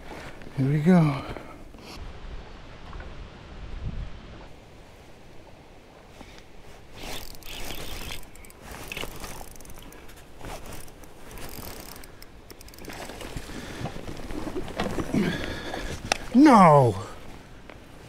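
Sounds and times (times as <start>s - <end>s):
fishing reel clicking and whirring: 7.0s - 9.9s, 10.7s - 13.1s.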